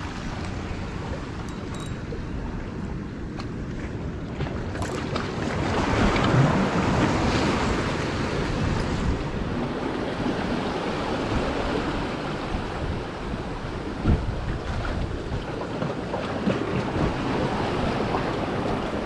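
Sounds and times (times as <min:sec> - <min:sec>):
wind buffeting the microphone: 0:00.0 - 0:19.0
waves washing against rocks: 0:04.6 - 0:19.0.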